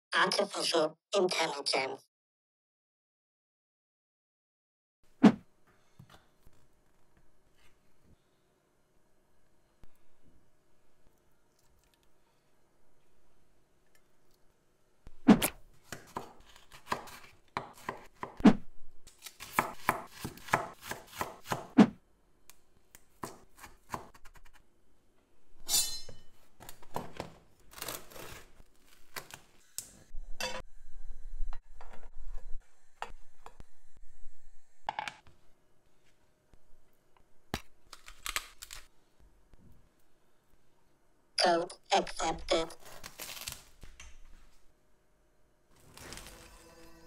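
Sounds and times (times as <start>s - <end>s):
knife chopping on cutting board: 15.4s - 18.5s, 19.4s - 22.0s, 23.2s - 24.4s.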